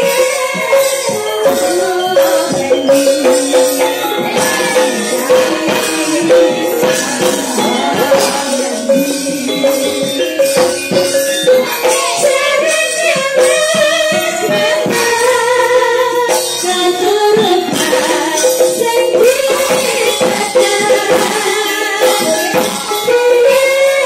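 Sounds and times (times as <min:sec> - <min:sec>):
gamelan metallophones and gong-chimes: 0:00.0 - 0:15.0
women singing: 0:00.0 - 0:24.0.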